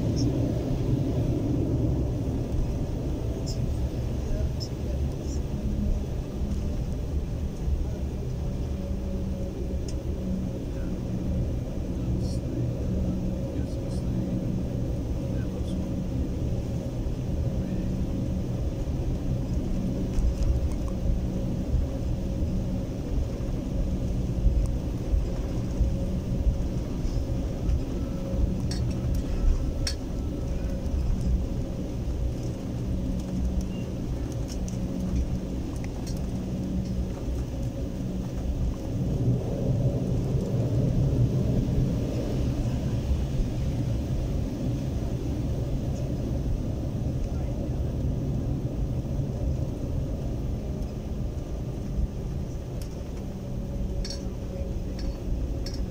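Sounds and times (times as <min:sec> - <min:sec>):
faint hum: 0:00.0 - 0:55.9
jet cabin low rumble: 0:00.0 - 0:55.9.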